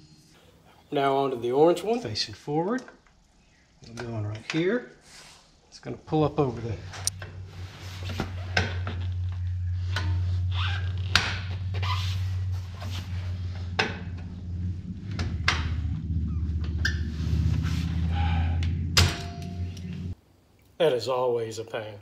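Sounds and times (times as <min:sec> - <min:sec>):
steady low hum: 0:05.9 - 0:20.5.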